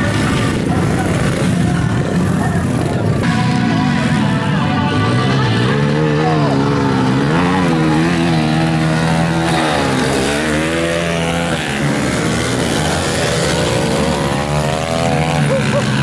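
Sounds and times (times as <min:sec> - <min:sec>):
dirt bike engines revving: 0:00.0 - 0:16.0.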